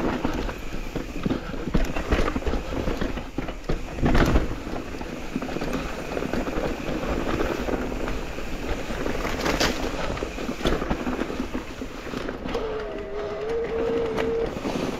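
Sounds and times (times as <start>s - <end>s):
bike rattling over bumps: 0.0s - 14.9s
bike tyre and trail noise: 0.0s - 14.9s
wind on microphone: 8.8s - 14.9s.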